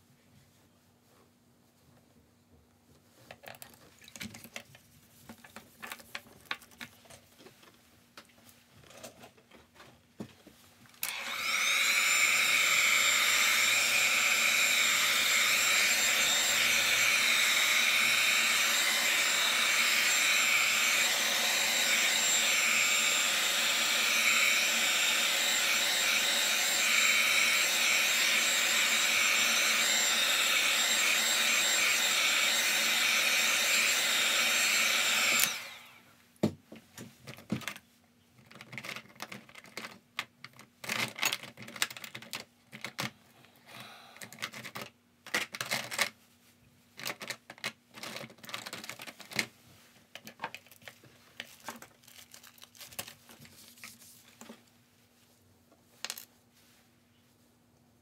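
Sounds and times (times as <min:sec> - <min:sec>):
hair dryer blowing: 0:11.0 - 0:36.1.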